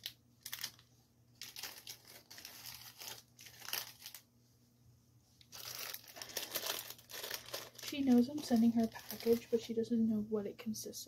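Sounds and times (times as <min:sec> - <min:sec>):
paper grass crinkling: 0:01.4 - 0:04.2, 0:05.4 - 0:09.7.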